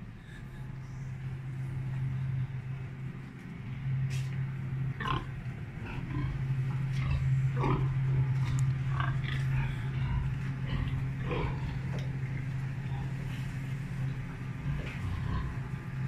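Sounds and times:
steady low hum: 0.0 - 16.0
pigs grunting and squealing: 5.0 - 13.4, 14.4 - 16.0.

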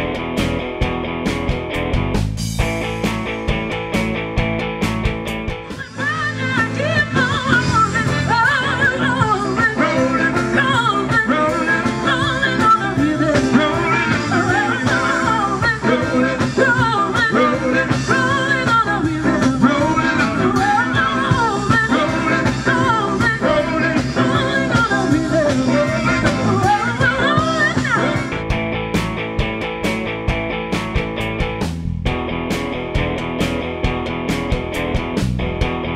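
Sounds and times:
live blues-rock band: 0.0 - 35.9
person singing: 5.7 - 28.4.

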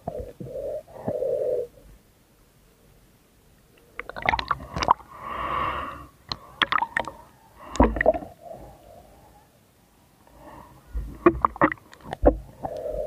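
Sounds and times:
bubbles rushing underwater: 4.0 - 5.0
underwater clicks and knocks: 11.0 - 12.4.

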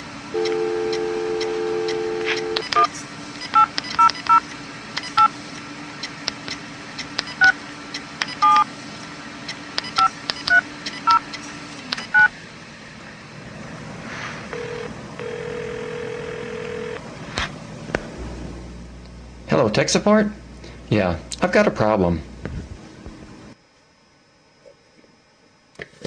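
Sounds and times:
telephone ringing tone: 0.3 - 2.9, 14.5 - 17.0
telephone keypad beeps: 8.3 - 8.6, 9.8 - 11.2, 12.0 - 12.3.

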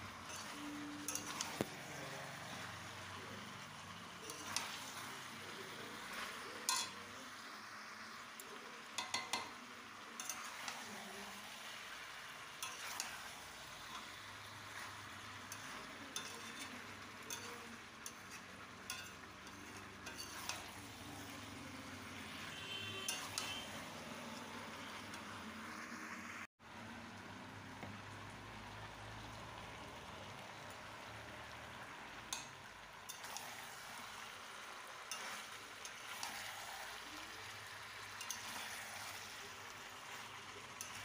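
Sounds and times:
curry sizzling in a pan: 0.0 - 41.0
spatula scraping a pan: 0.2 - 3.1, 4.2 - 7.2, 10.2 - 11.4, 12.6 - 25.4, 33.1 - 41.0.

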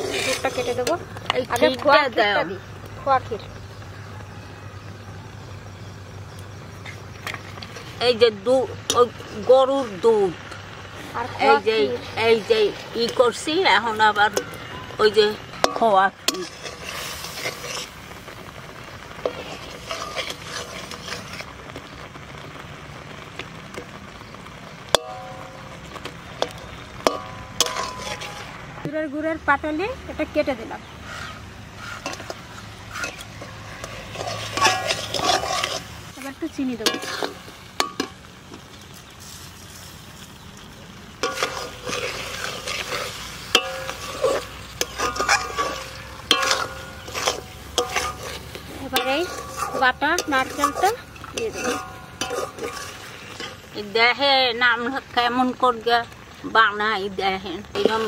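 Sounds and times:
metal spatula scraping wok: 0.0 - 2.4, 6.7 - 21.6, 24.9 - 28.8, 30.8 - 38.3, 41.1 - 55.9, 57.7 - 58.0
low sizzle from pan: 0.0 - 58.0.

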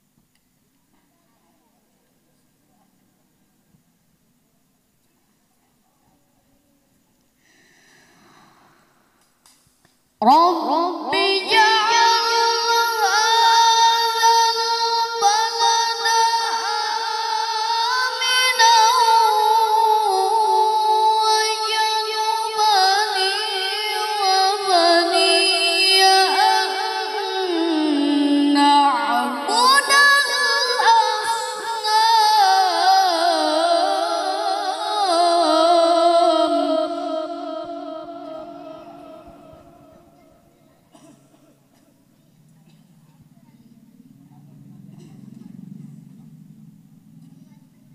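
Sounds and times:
boy reciting melodically: 10.2 - 41.4.

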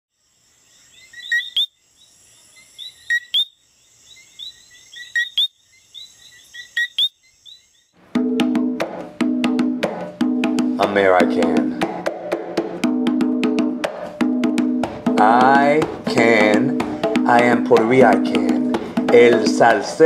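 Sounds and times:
faint frog chirps: 0.1 - 8.0
frogs two-note calls: 0.7 - 7.9
pitched percussive music: 8.1 - 20.0.

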